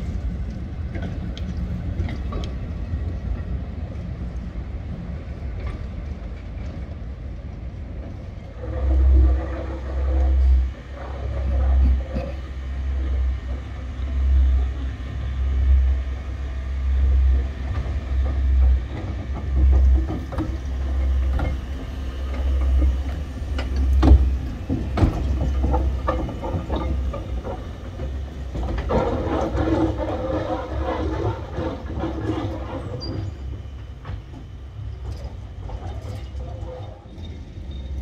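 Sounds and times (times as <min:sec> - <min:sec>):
steam tram low rumble: 0:00.0 - 0:38.0
wheels clicking on rails: 0:17.4 - 0:38.0.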